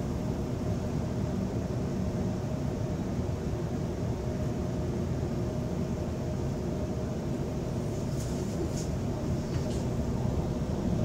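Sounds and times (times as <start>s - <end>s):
train rumbling: 7.5s - 11.0s.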